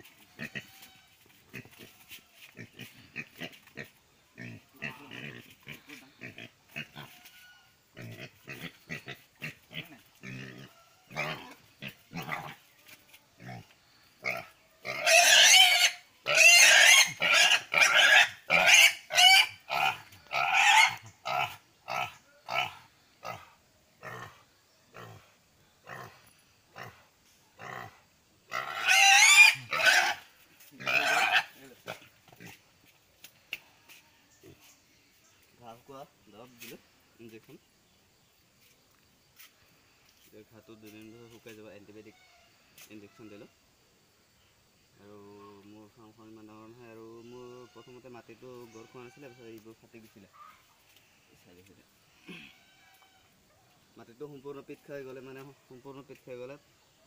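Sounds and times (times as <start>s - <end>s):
pig squealing: 0.2s - 1.9s, 2.6s - 12.6s, 14.2s - 23.4s, 28.5s - 32.6s
pig grunting: 2.6s - 7.2s, 8.0s - 12.6s, 13.4s - 27.0s, 27.6s - 30.2s, 30.8s - 32.6s.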